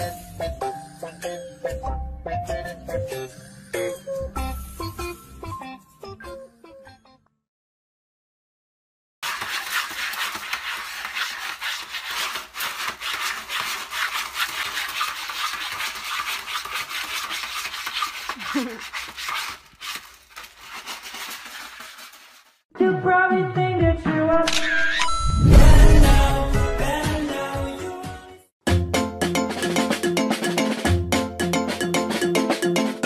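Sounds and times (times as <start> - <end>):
cat scratching in litter: 9.2 - 22.6.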